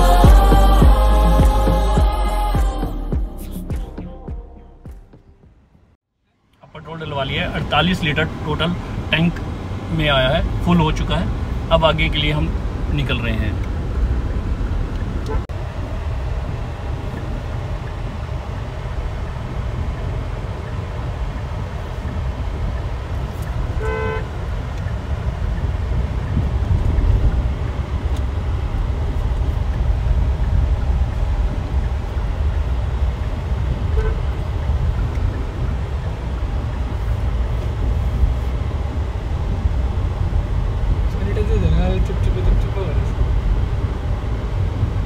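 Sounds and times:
car engine and road rumble: 0:00.0 - 0:45.0
car horn toot: 0:15.2 - 0:15.5, 0:23.6 - 0:24.6, 0:33.8 - 0:34.6.

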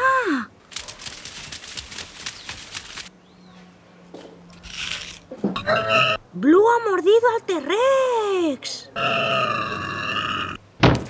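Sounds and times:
dry crunching and rustling: 0:00.6 - 0:03.1.

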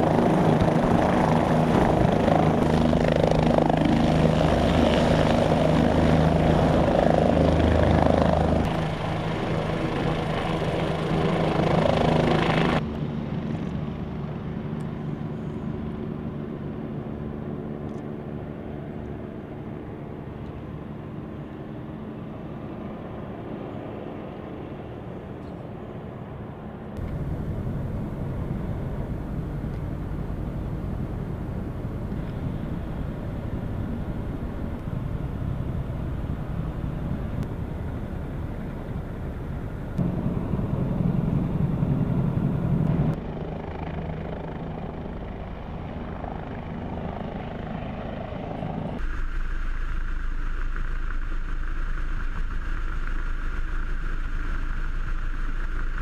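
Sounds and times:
distant helicopter noise: 0:00.0 - 0:56.0
helicopter rotor whir: 0:00.0 - 0:56.0
steady low rumble: 0:27.0 - 0:44.2.

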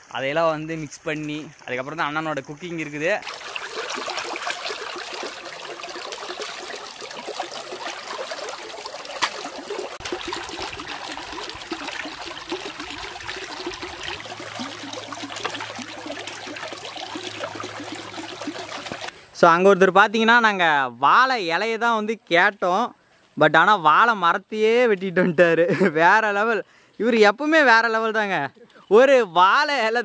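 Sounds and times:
water babbling and splashing: 0:00.0 - 0:19.1.

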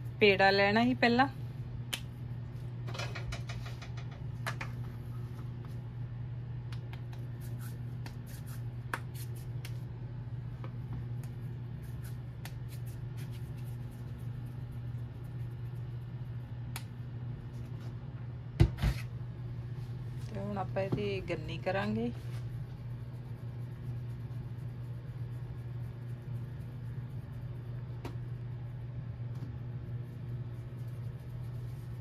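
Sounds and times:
steady low hum: 0:00.0 - 0:32.0
hands working dough: 0:06.6 - 0:19.2, 0:19.8 - 0:32.0.

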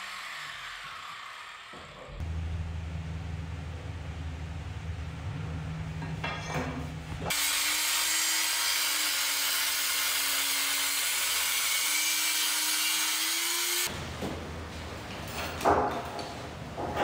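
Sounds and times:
angle grinder cutting metal pipe: 0:00.0 - 0:02.2, 0:07.3 - 0:13.9
low hum: 0:02.0 - 0:07.3.

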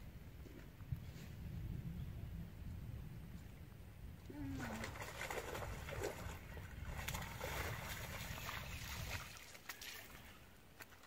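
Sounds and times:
water splashing in shallow water: 0:04.3 - 0:11.0.

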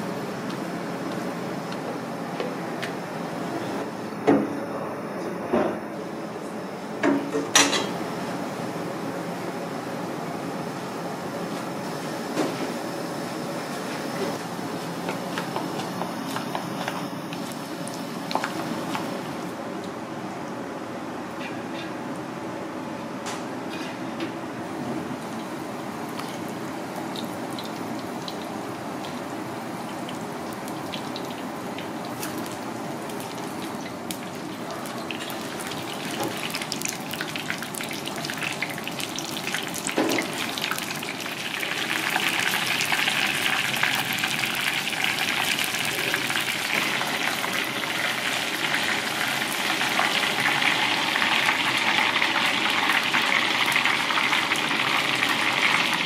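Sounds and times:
fish deep-frying in oil: 0:25.2 - 0:56.0.

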